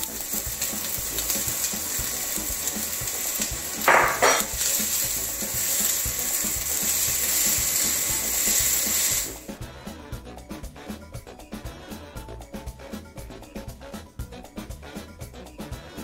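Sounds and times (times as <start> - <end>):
onions sizzling in hot oil: 0.0 - 9.6.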